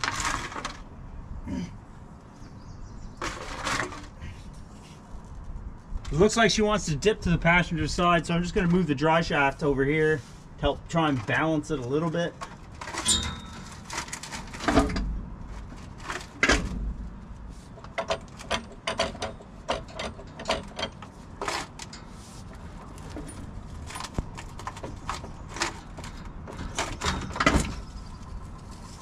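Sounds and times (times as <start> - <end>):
metal clunks and knocks: 12.4 - 17.2, 17.8 - 22.1, 22.8 - 28.0.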